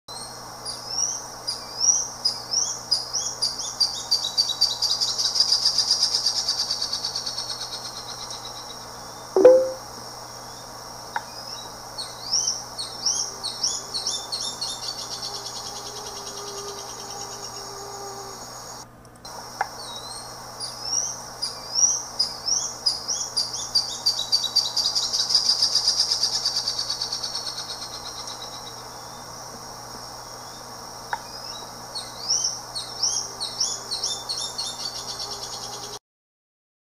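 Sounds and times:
bird whistling trill: 9.4 - 9.8.

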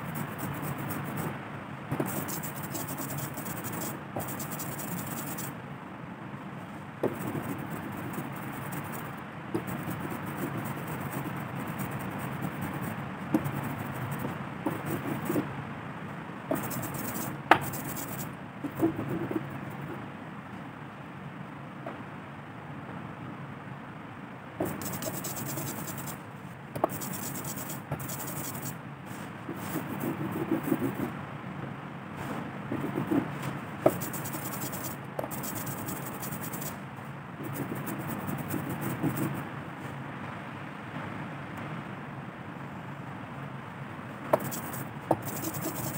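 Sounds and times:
steady background hiss: 0.0 - 45.9
ink roller rubbing over woodblock: 1.9 - 5.5, 7.0 - 15.5, 16.5 - 19.5, 24.6 - 26.2, 26.8 - 28.8, 29.5 - 31.1, 33.9 - 36.8, 37.4 - 39.4, 44.4 - 45.9.

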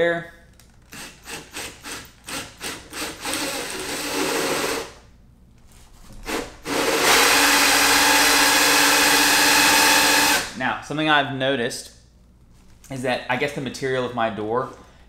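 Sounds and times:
cordless drill cutting with hole saw: 0.9 - 5.0, 6.3 - 10.5.

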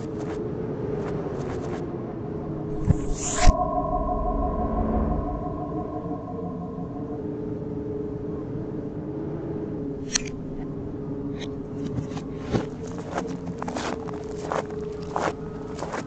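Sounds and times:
low hum: 2.0 - 11.2
reversed cartoon sound effects: 2.4 - 8.2.

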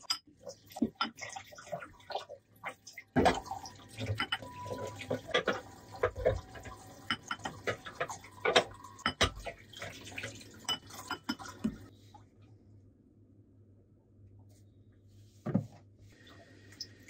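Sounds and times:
glass bowls clinking and knocking: 0.0 - 1.3, 3.2 - 9.5, 10.6 - 11.8.

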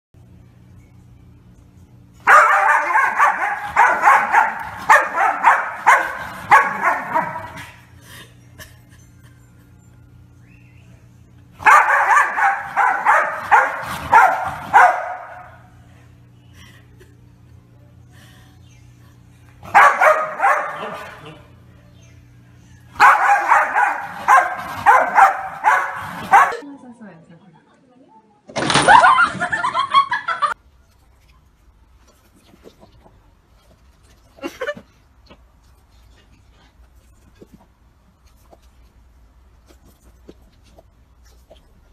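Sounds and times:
dog barking and yipping: 2.2 - 7.8, 11.6 - 15.6, 19.6 - 21.4, 23.0 - 26.6.

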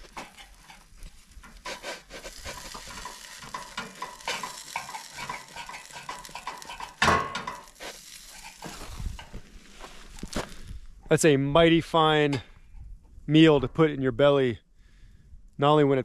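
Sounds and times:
cheese sizzling in a skillet: 0.0 - 9.9
knife scraping a pan: 1.5 - 8.9.

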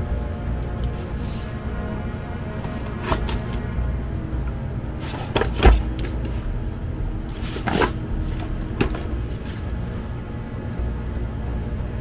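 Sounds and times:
cardboard box scraping and knocking: 2.6 - 3.6, 5.0 - 6.4, 7.3 - 9.8.

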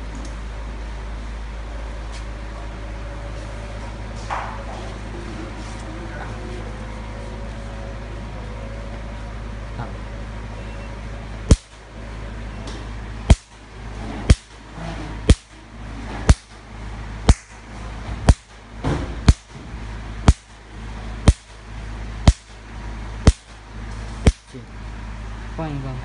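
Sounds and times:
steady low hum: 0.0 - 26.0
laser pulse snaps: 11.5 - 11.8, 13.3 - 13.6, 14.3 - 14.6, 15.3 - 15.6, 16.3 - 16.6, 17.3 - 17.6, 18.3 - 18.6, 19.3 - 19.5, 20.2 - 20.6, 21.2 - 21.6, 22.2 - 22.6, 23.2 - 23.6, 24.2 - 24.6.

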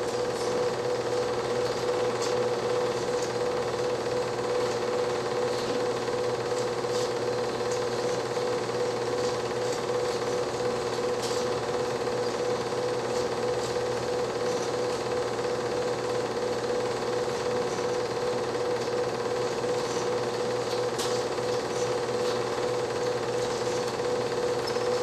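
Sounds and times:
film projector whirring: 0.0 - 25.0.

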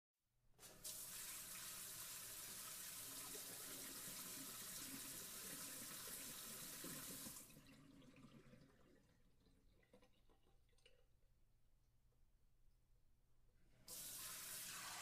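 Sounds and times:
tap water running: 0.6 - 11.0, 13.9 - 15.0.

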